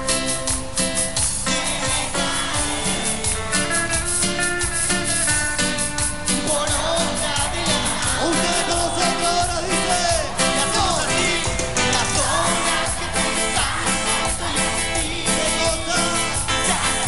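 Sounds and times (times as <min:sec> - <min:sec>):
band playing dance beat: 0:00.0 - 0:17.0
person singing: 0:01.5 - 0:04.3, 0:06.2 - 0:17.0.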